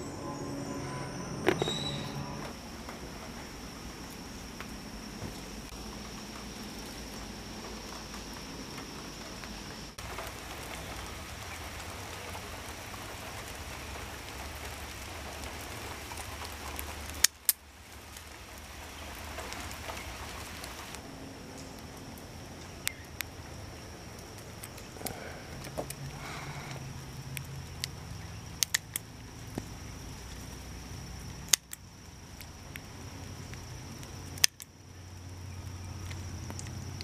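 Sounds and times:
faint steady high tone: 0.0s - 2.9s.

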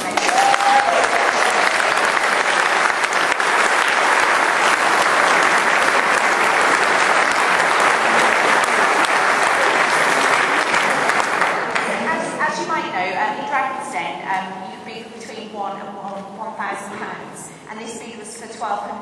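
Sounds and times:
crowd applauding: 0.0s - 12.4s.

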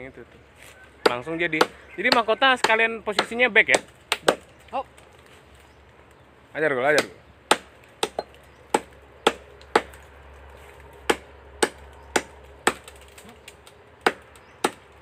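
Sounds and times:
axe chopping tree trunk: 1.0s - 4.6s, 6.8s - 10.0s, 11.1s - 13.3s, 14.0s - 15.0s.

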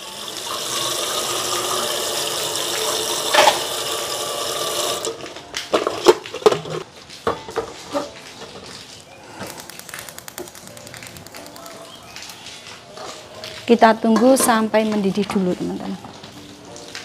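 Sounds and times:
water running from tap: 0.0s - 9.0s, 11.3s - 17.0s
kitchenware clattering: 5.7s - 8.7s, 14.0s - 15.4s.

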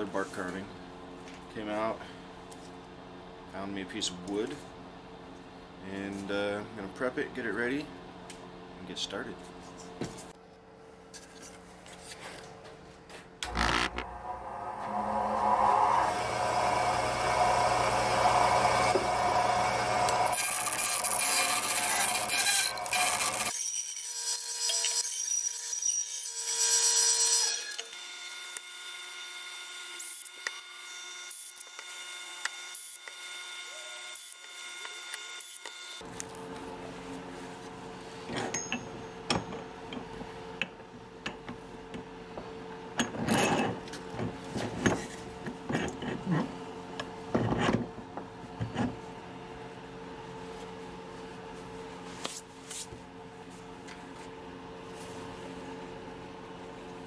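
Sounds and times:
steady hum: 13.4s - 20.3s
band saw cutting bark: 14.9s - 28.7s.

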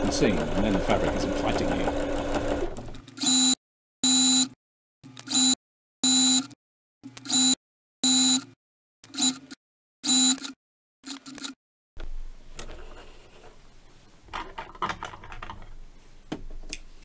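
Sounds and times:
sewing machine motor humming: 0.0s - 3.0s.

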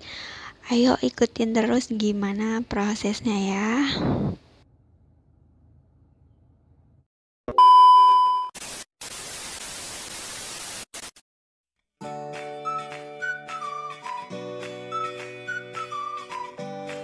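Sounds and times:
loud steady beep: 7.6s - 8.5s
static hiss: 8.6s - 11.2s.

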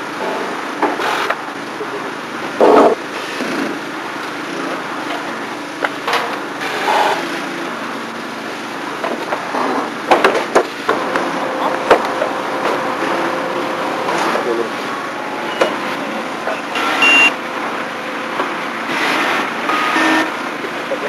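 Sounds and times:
carpentry knocks and bangs: 10.1s - 11.0s.

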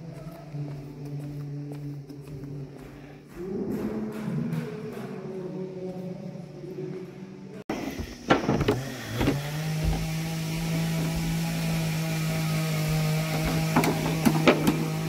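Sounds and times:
electric motor hum: 7.7s - 15.0s.

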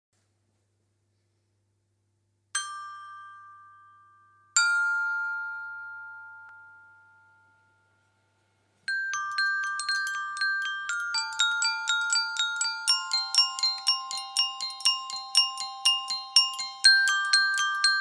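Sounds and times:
metal chimes ringing: 2.6s - 7.8s, 8.9s - 18.0s.

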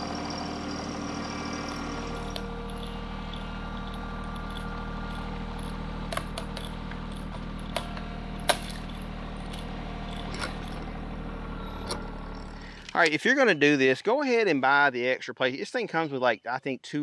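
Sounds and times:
tractor diesel engine running: 0.0s - 13.3s.

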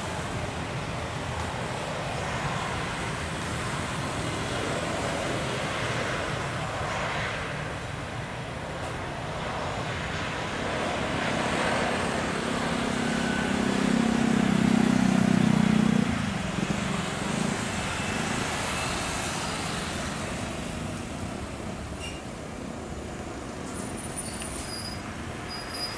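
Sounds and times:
jet engines rushing: 0.0s - 25.9s.

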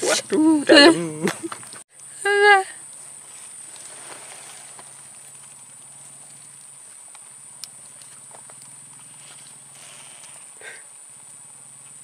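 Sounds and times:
grass and twigs rustling: 2.8s - 12.0s.

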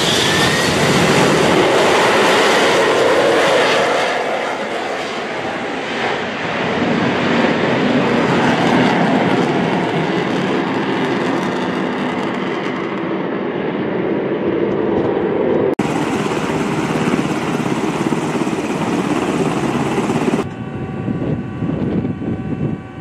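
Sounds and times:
tiltrotor aircraft humming: 0.0s - 23.0s
loud steady rushing noise: 15.8s - 23.0s.

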